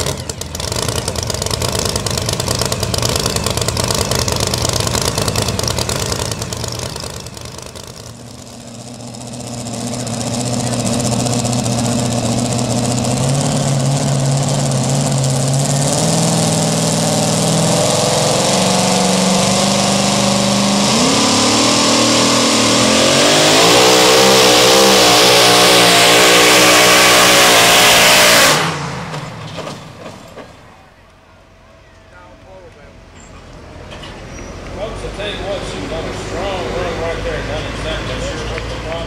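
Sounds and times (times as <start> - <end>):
supercharged truck engine revving: 0.0 - 30.5.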